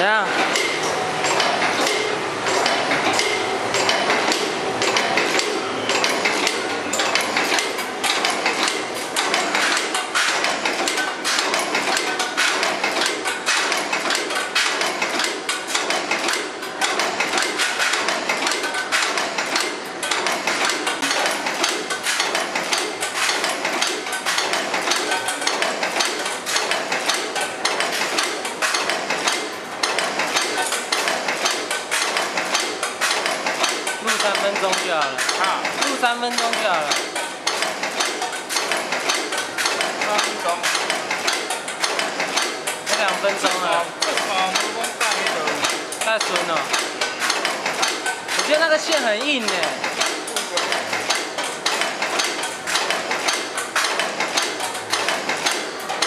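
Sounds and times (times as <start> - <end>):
rivet machine metallic clatter: 0.0 - 56.0.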